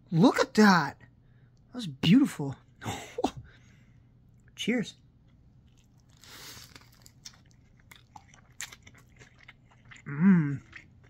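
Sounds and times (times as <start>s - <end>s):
chewing with wet mouth clicks: 5.2s - 11.0s
biting into burger crunch: 5.7s - 11.0s
person humming: 10.1s - 10.6s.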